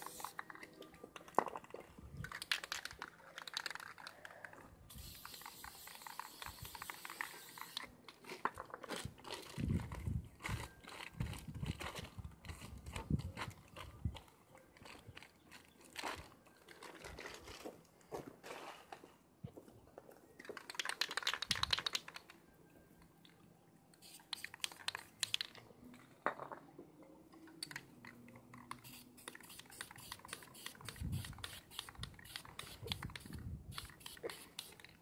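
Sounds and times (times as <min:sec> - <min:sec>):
spray paint hissing: 0:00.0 - 0:00.5, 0:04.9 - 0:07.9, 0:24.0 - 0:25.6, 0:28.7 - 0:35.0
spray can ball rattling: 0:00.0 - 0:08.4, 0:20.5 - 0:22.3, 0:24.0 - 0:25.6, 0:27.6 - 0:35.0.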